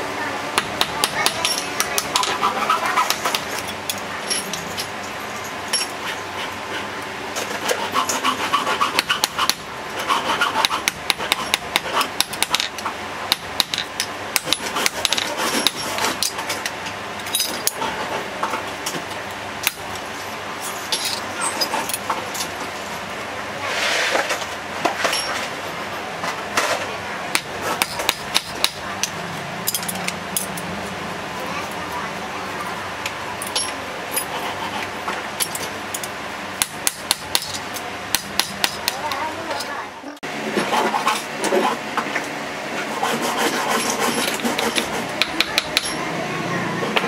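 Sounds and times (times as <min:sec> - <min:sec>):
hammer tapping on metal: 0:36.6 - 0:39.2, 0:44.5 - 0:46.0.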